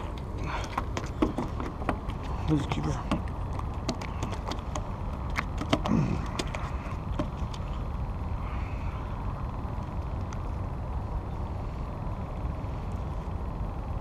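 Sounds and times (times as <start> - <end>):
clicks and knocks on wooden deck: 0.6 - 2.4, 3.0 - 7.6.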